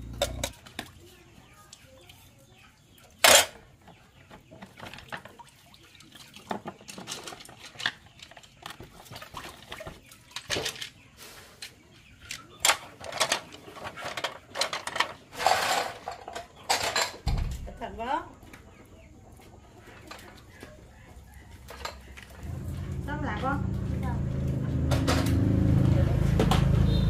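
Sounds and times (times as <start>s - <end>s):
utensils clinking: 0.0s - 0.7s, 12.6s - 17.5s, 21.6s - 22.2s
pots and dishes clattering: 0.1s - 0.7s, 12.6s - 17.6s, 21.6s - 22.2s.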